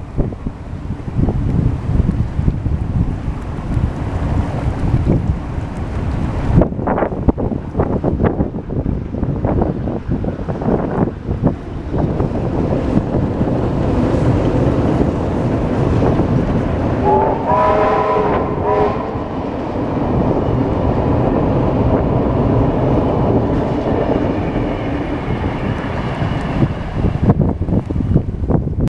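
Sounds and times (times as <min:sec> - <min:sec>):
steam train rumbling over bridge: 0:00.0 - 0:28.9
train whistle chord: 0:17.0 - 0:19.2.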